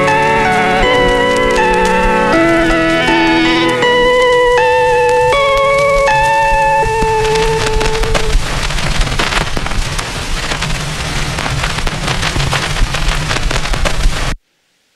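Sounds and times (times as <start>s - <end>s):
held musical note: 0.0s - 8.4s
dense crackling noise: 0.0s - 14.9s.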